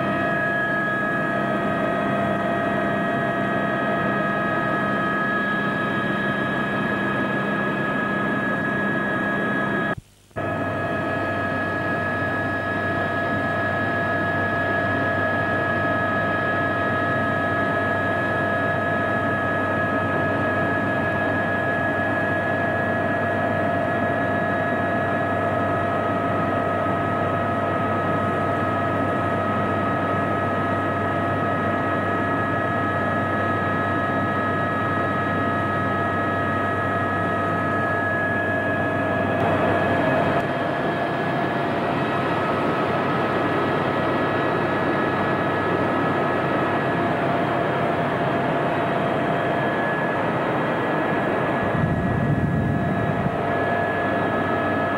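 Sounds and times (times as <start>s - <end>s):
helicopter turbine whine: 0.0s - 54.9s
engine and rotor rush: 48.6s - 54.9s.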